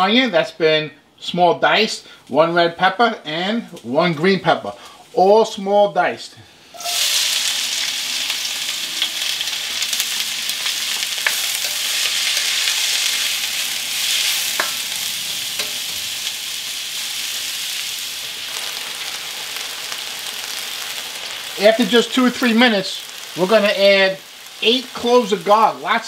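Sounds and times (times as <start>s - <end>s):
vegetables sizzling in hot oil: 6.7s - 26.0s.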